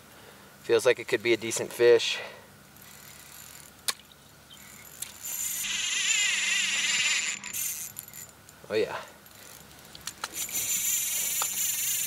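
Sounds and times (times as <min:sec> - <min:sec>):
fishing reel ratcheting: 0:02.8 - 0:08.4, 0:09.2 - 0:12.0.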